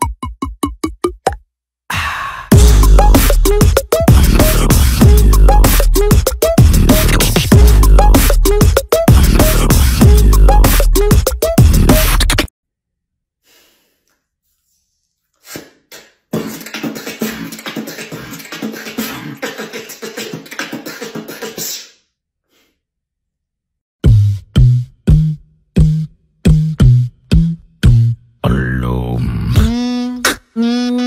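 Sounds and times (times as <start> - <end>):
beatbox kick drum beats: 0.0 - 1.4, 2.0 - 12.5, 15.5 - 22.0, 24.0 - 28.2, 29.5 - 31.0
beatbox crackling: 2.5 - 12.5, 15.4 - 22.0, 24.0 - 28.2, 29.6 - 31.0.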